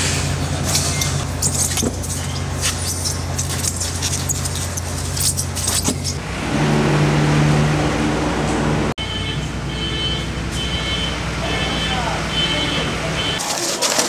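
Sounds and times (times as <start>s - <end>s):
low machine hum: 6.1s - 9.7s.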